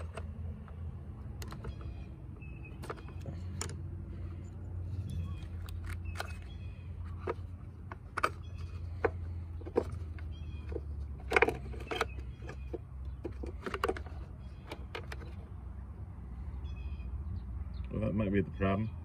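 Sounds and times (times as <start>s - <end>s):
clicks and knocks of handling plastic: 2.7s - 3.9s, 5.1s - 15.5s.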